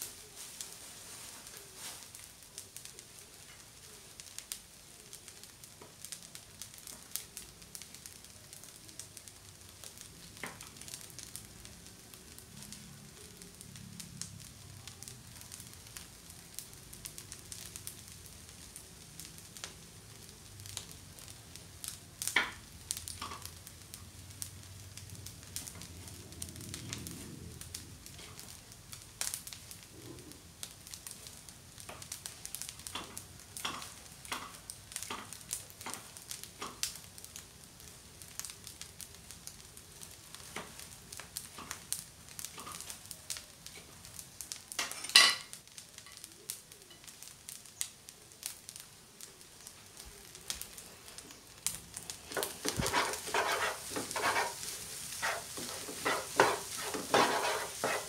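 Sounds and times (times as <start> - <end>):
rice sizzling in a frying pan: 0.0 - 58.0
wooden spatula scraping pan: 52.3 - 58.0.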